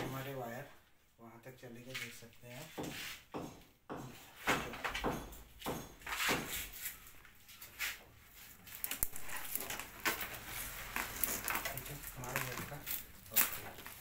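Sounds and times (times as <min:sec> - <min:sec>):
electrical wires rustling and scraping: 0:06.0 - 0:14.0.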